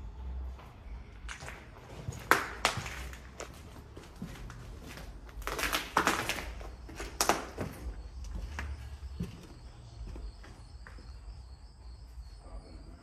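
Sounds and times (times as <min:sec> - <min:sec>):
footsteps crunching over debris: 0:01.3 - 0:11.4.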